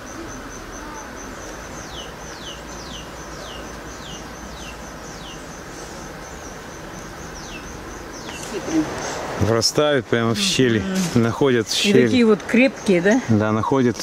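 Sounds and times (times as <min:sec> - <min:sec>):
high pulsing chirp: 0:00.0 - 0:09.2.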